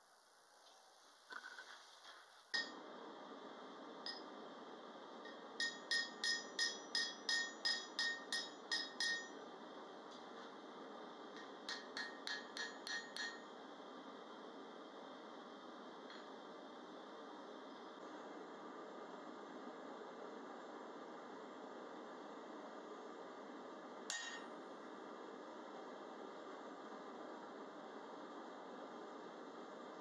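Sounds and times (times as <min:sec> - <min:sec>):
hammer ringing on steel bar: 0:05.6 - 0:09.4, 0:11.7 - 0:13.5.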